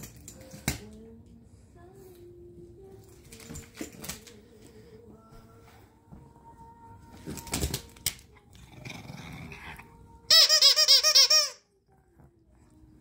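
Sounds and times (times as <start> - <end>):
dog toy squeaking: 10.3 - 11.7.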